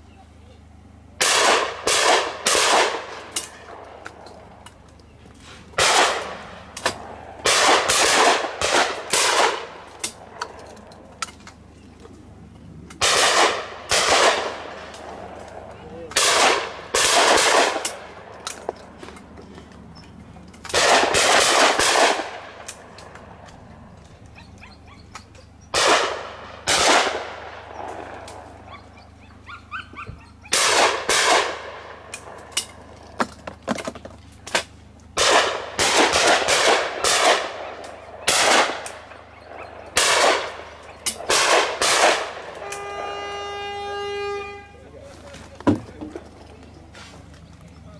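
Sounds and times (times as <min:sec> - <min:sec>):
shotgun shots with echo: 0:01.2 - 0:03.8, 0:05.8 - 0:10.4, 0:13.0 - 0:15.0, 0:16.1 - 0:18.1, 0:20.7 - 0:22.9, 0:25.7 - 0:28.3, 0:30.5 - 0:32.4, 0:35.2 - 0:42.9
horn long note: 0:42.5 - 0:45.0.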